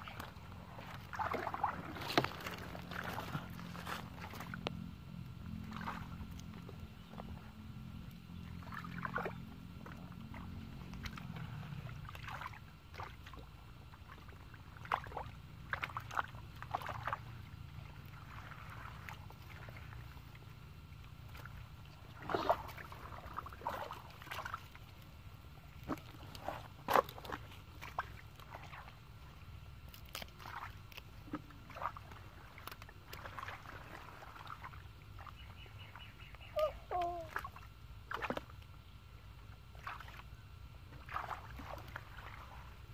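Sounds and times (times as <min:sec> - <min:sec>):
hands splashing in muddy water: 0:00.0 - 0:04.6, 0:21.3 - 0:24.8, 0:41.0 - 0:42.7.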